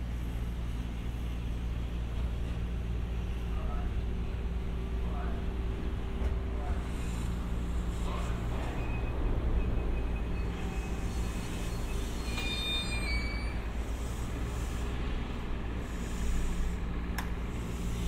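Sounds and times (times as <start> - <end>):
train rumbling on rails: 0.0 - 18.0
high-pitched wheel squeal: 9.8 - 13.8.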